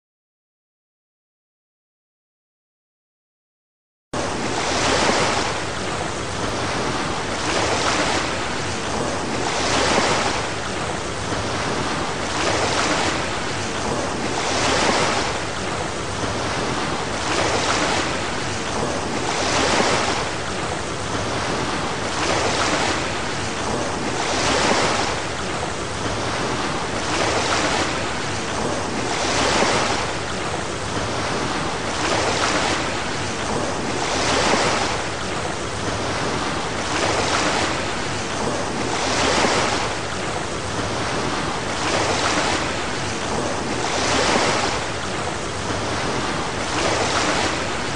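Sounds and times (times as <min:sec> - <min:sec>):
sea waves washing: 0:04.2 - 0:47.9.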